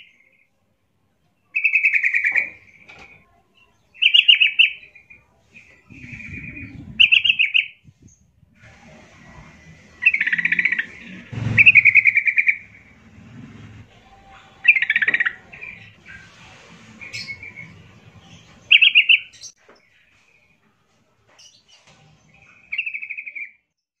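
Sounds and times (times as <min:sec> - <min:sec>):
bulbul singing: 0:01.5 - 0:08.3, 0:09.8 - 0:20.0.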